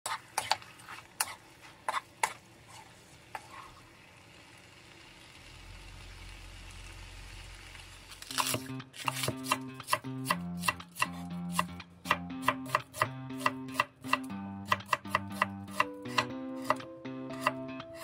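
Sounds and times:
food sizzling in a frying pan: 0.1s - 8.6s
light music: 8.3s - 18.0s
knife chopping on wooden board: 8.4s - 16.8s.

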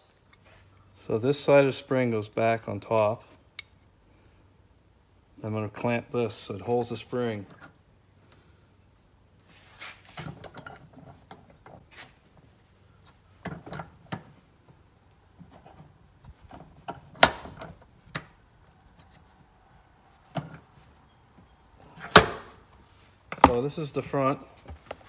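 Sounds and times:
sharp metal clack: 17.2s - 17.7s.

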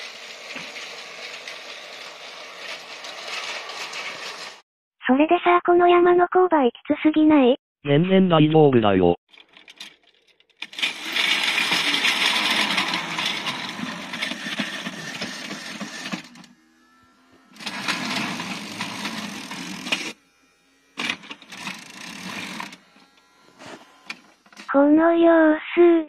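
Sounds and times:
toy train motor whirring: 0.0s - 4.6s, 9.3s - 24.8s
plastic wheels clattering on track: 9.3s - 16.5s.

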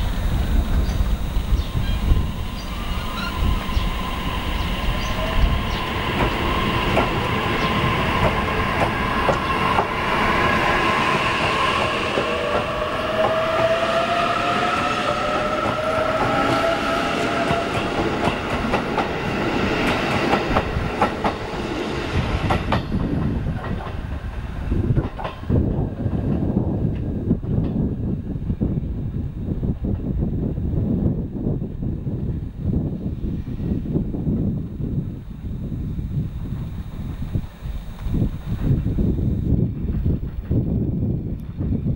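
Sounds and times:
electric train motor whine: 0.0s - 27.4s, 33.1s - 41.2s
train wheels clicking over rail joints: 5.0s - 13.8s, 17.3s - 24.1s, 24.9s - 27.9s.

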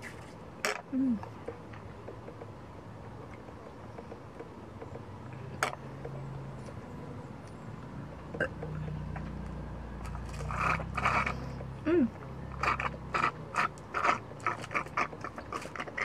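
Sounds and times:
slurping through a straw: 10.0s - 16.0s.

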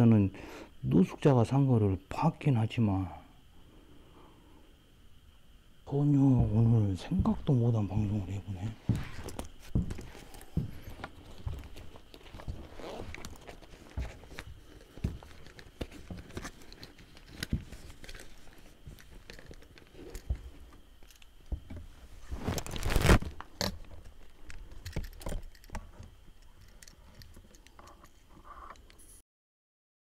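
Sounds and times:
rustling scrape: 21.9s - 23.3s.

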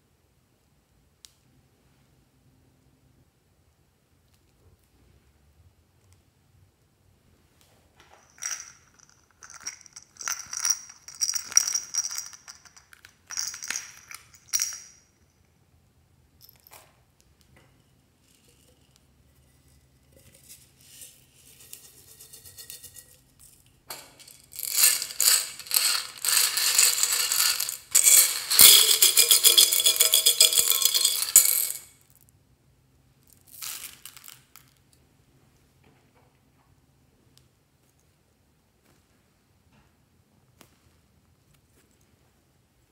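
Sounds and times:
beads poured onto tray clicking: 23.9s - 31.9s.

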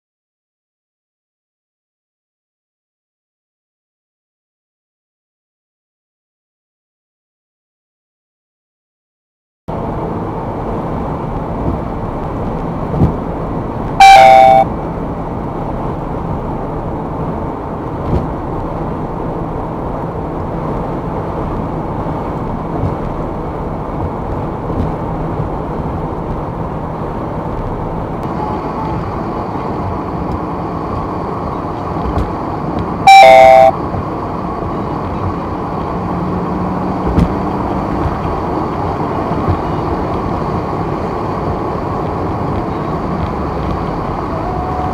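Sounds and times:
road and engine noise: 9.7s - 44.9s
dashcam alert beep: 14.0s - 14.7s, 33.0s - 33.8s.

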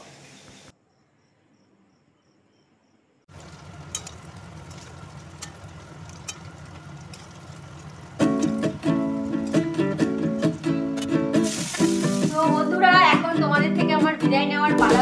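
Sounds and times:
cheese frying in oil: 3.3s - 12.8s
spatula clicking on pan: 3.9s - 7.4s
music: 8.2s - 15.0s.

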